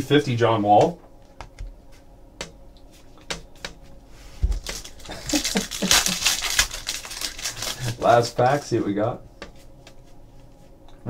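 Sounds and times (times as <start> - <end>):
foil wrapper crinkling and tearing: 4.4 - 8.4.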